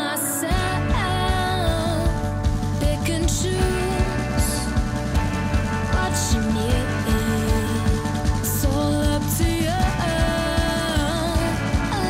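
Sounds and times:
music with drum beat: 0.5s - 12.0s.

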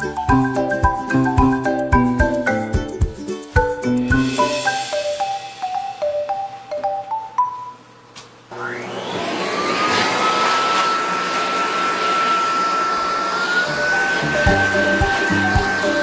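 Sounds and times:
pet dryer motor whining: 8.5s - 16.0s.

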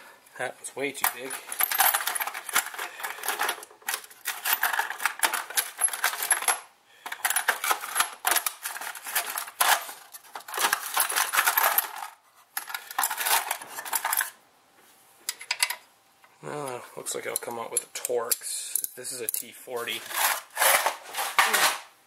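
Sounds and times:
metal hand tools clinking: 1.0s - 14.3s.

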